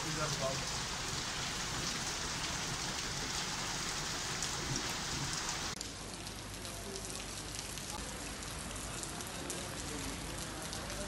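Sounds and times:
heavy rain hissing: 0.0s - 5.8s.

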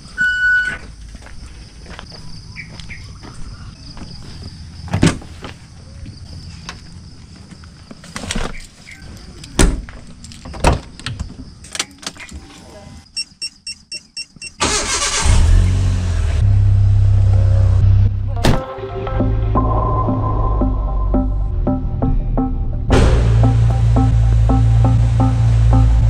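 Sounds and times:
footsteps: 0.6s - 8.2s.

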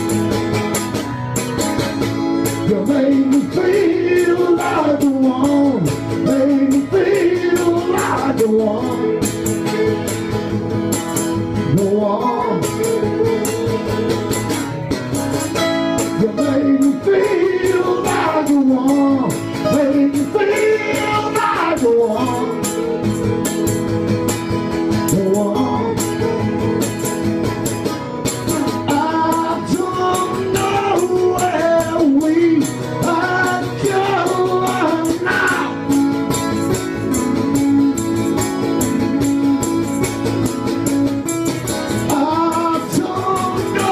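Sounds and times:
acoustic guitars playing: 0.0s - 43.9s
man singing: 2.6s - 9.7s, 11.6s - 14.2s, 16.0s - 23.2s, 25.0s - 26.6s, 28.5s - 35.9s, 42.0s - 43.9s.

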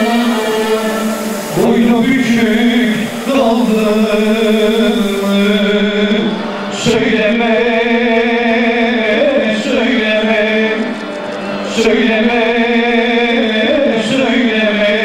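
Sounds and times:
man singing folk song: 0.0s - 11.0s, 11.7s - 15.0s.

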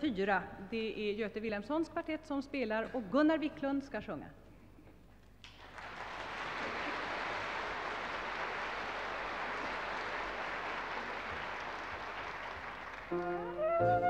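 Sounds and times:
audience applauding: 5.4s - 13.7s.

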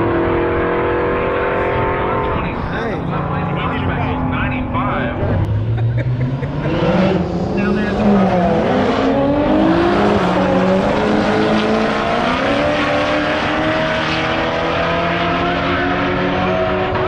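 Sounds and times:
car engines at full throttle: 0.0s - 17.0s.

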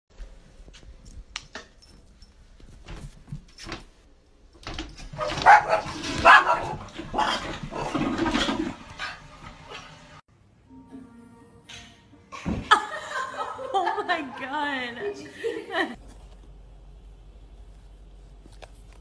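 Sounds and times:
small dog barking: 5.2s - 6.8s.

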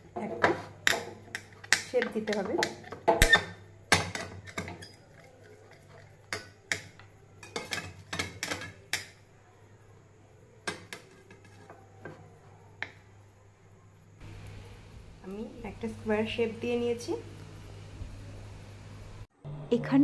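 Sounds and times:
knife tapping and scraping plate: 0.3s - 9.2s
faint low hum: 11.2s - 20.0s.

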